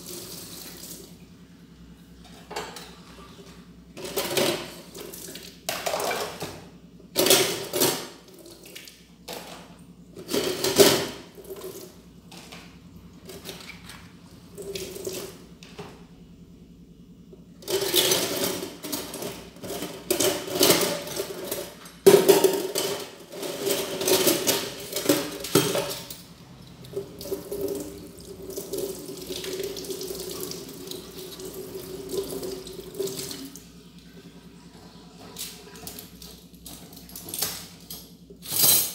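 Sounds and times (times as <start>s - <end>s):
tap water splashing over dishes: 24.0s - 33.7s.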